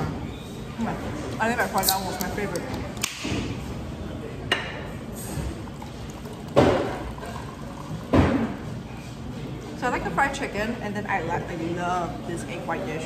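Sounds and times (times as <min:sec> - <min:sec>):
soda pouring into a glass: 0:05.2 - 0:08.8.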